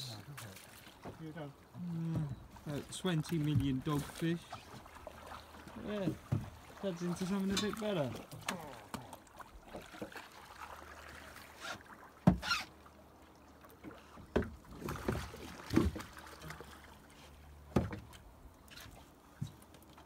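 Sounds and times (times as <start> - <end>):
water slapping against boat: 0.0 - 20.0
knocks against hull: 5.8 - 6.7, 12.2 - 12.6, 14.2 - 16.2, 17.7 - 18.2.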